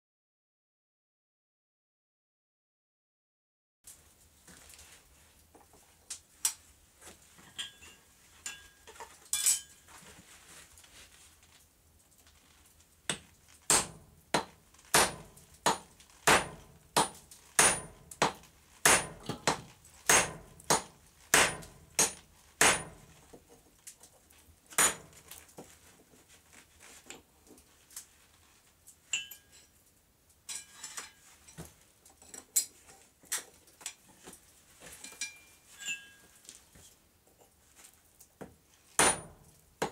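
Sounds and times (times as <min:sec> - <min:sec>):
hammer striking metal punch: 0:13.7 - 0:23.0, 0:24.8 - 0:25.1, 0:39.0 - 0:39.9.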